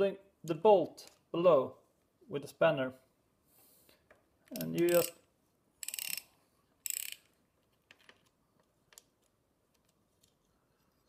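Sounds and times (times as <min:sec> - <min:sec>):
ratchet wrench clicking: 0:04.6 - 0:05.2, 0:05.8 - 0:07.3.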